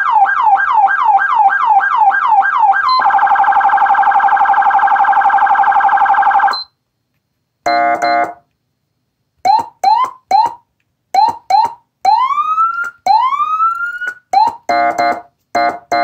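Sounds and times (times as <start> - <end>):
electronic siren yelp and warble: 0.0 - 6.7, 9.5 - 10.6, 11.2 - 15.2.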